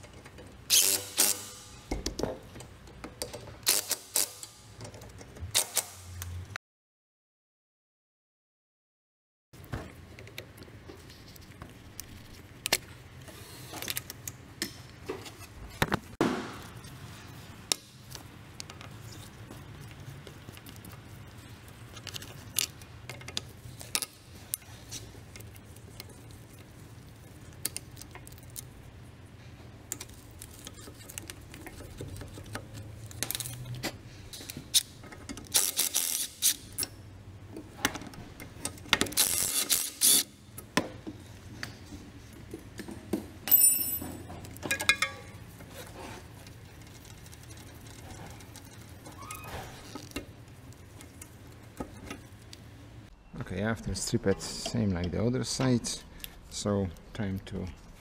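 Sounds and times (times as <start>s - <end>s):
hand tools clinking on metal: 43.5s - 45.4s.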